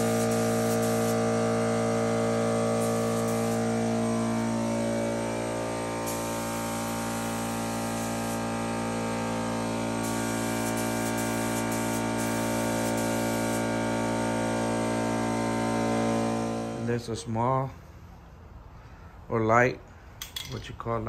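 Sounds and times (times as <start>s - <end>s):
paint spray gun hissing: 0.0s - 16.8s
steady hum: 0.0s - 19.0s.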